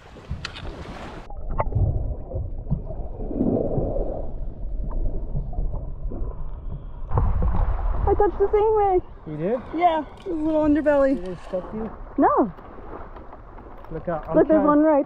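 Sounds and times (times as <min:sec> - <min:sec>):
muffled underwater water rumble: 0:00.0 - 0:15.0
faint underwater clicks: 0:00.2 - 0:00.9, 0:08.5 - 0:15.0.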